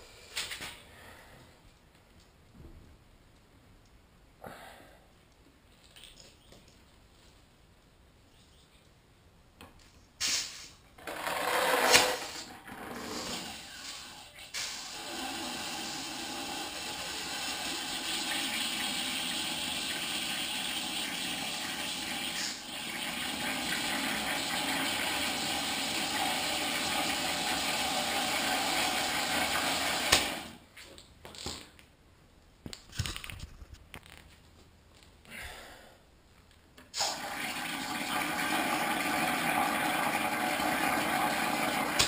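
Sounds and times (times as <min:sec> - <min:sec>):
compressed air hissing: 0:10.2 - 0:10.8, 0:13.1 - 0:16.7.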